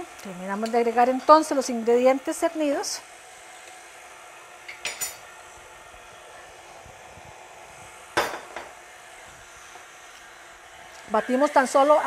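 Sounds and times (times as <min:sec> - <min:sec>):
glass bowls and utensils clinking: 0:04.7 - 0:05.2.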